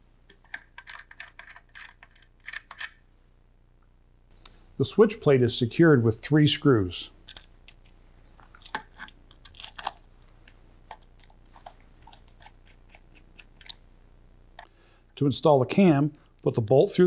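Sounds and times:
screwdriver clicks and scrapes: 0:00.3 - 0:03.0.

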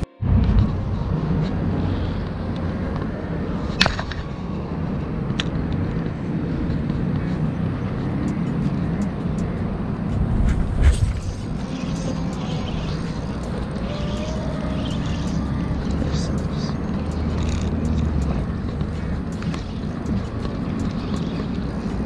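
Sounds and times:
wind rumbling on microphone: 0:00.2 - 0:22.0
faint ticks: 0:11.4 - 0:22.0.

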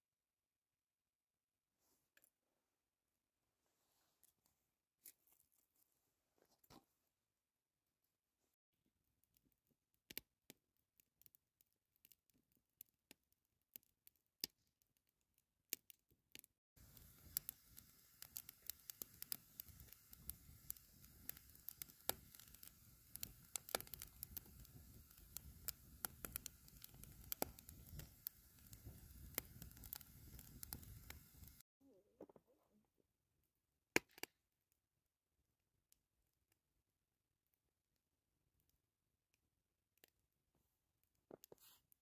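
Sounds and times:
low hiss of fire: 0:16.8 - 0:31.6
wood fire crackling: 0:16.8 - 0:31.6.

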